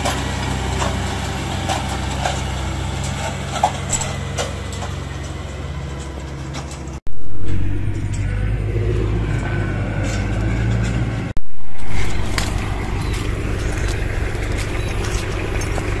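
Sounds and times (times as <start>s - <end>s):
truck engine running: 0.0s - 16.0s.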